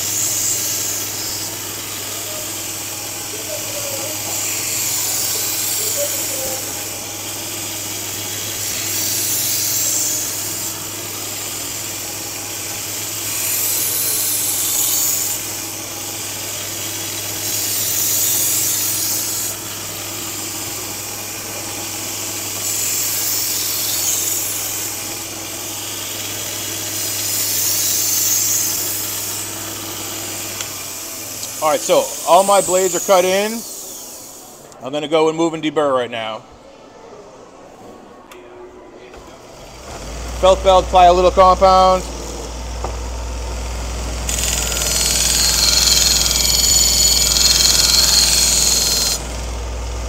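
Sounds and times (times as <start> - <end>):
belt grinder motor hum: 0.0 - 34.7, 39.7 - 50.0
knife grinding on belt: 44.3 - 49.2.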